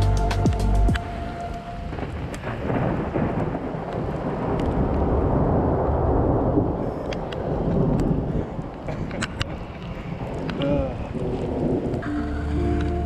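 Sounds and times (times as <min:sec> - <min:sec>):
music track: 0:00.0 - 0:02.4, 0:12.0 - 0:13.0
steady rain: 0:00.0 - 0:13.0
thunder rolling: 0:01.0 - 0:13.0.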